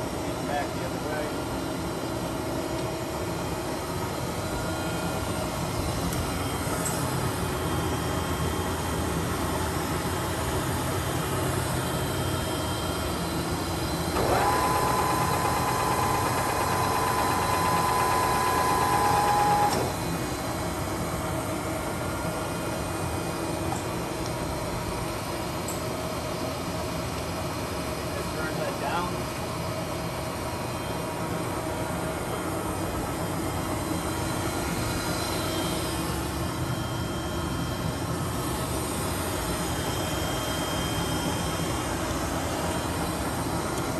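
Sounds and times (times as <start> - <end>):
boring mill humming: 0.0 - 26.0
motor whine rising in pitch: 12.8 - 20.6.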